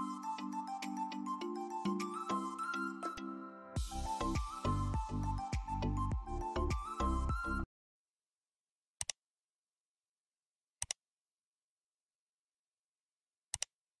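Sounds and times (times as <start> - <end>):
computer mouse double click: 13.5 - 13.7.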